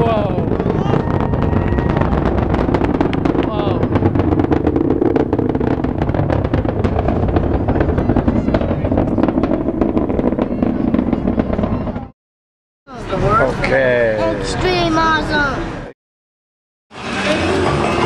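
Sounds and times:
rocket engines rumbling and crackling: 0.0 - 12.2.

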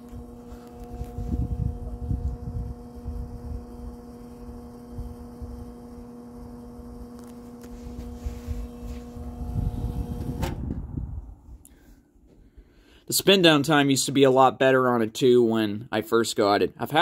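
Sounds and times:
fan motor hum and air rush: 0.0 - 12.8.

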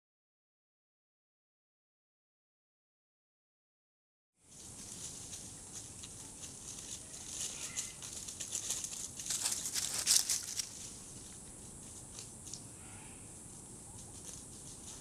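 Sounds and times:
dry leaves crackling underfoot: 4.4 - 12.7, 13.4 - 15.0.

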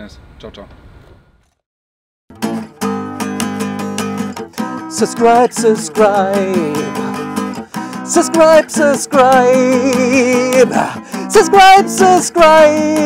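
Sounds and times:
acoustic guitar strumming: 2.3 - 13.0
man singing: 4.6 - 13.0.

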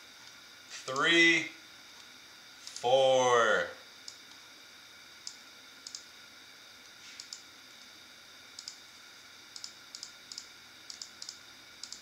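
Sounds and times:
faint electronic whine: 0.0 - 12.0
mouse and keyboard clicks: 9.6 - 12.0.

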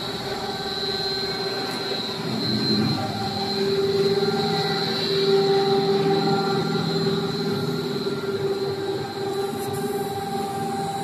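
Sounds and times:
high steady whine: 0.0 - 11.0
machine drone: 0.0 - 11.0.

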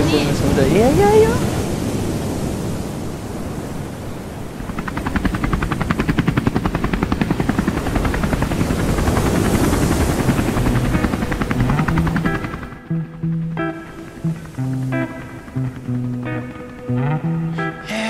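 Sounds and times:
rushing noise: 0.0 - 17.9
fast rotor chop: 4.7 - 13.0.

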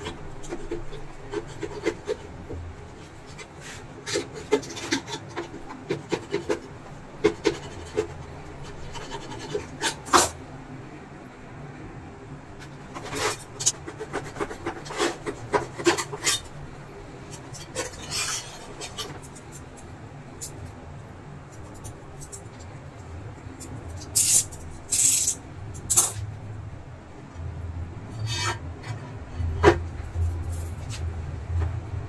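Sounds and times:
screwdriver scraping glass edge: 24.0 - 26.2.

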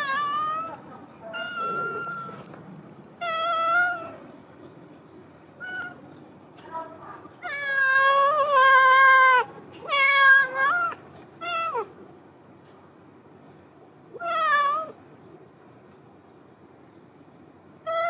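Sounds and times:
cat meowing: 0.0 - 2.5, 3.2 - 4.3, 5.6 - 6.0, 7.4 - 11.9, 14.1 - 15.0.

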